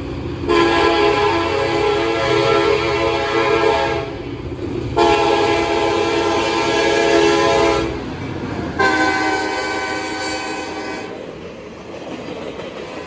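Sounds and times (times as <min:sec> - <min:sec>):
train rumble: 0:00.0 - 0:13.0
locomotive air horn blasts: 0:00.5 - 0:04.2, 0:05.0 - 0:08.0, 0:08.8 - 0:11.2.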